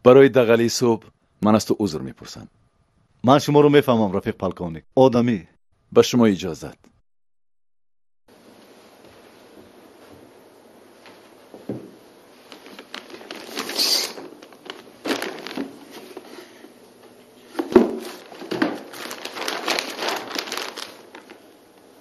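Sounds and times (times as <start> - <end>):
packaging rustling and crinkling: 12.4 - 16.5, 17.6 - 21.6.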